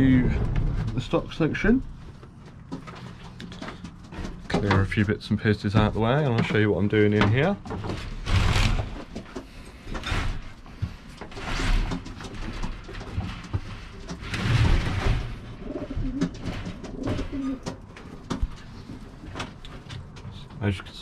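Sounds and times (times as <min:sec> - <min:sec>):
pigeons cooing: 0:15.5 - 0:17.8.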